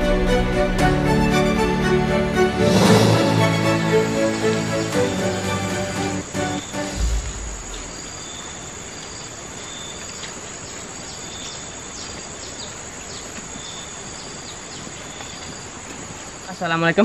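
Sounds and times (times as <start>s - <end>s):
music: 0.0s - 7.9s
insects buzzing: 3.0s - 17.0s
insect chirps: 6.2s - 17.0s
low thump: 7.0s - 8.5s.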